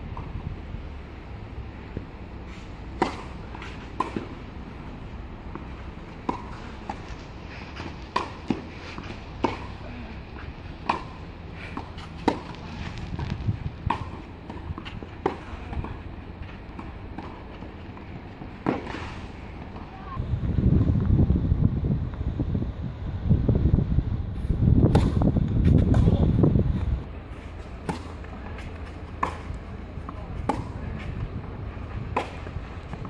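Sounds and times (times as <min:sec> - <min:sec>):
wind rumble on microphone: 0:00.0 - 0:02.3, 0:10.2 - 0:17.3, 0:19.6 - 0:33.0
rackets striking tennis ball: 0:02.9 - 0:04.6, 0:05.4 - 0:19.9, 0:27.4 - 0:33.0.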